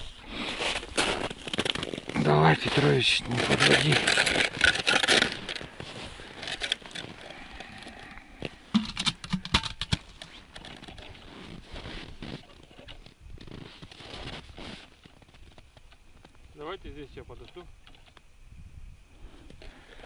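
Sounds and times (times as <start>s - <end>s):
plastic rustle: 0.0s - 7.3s.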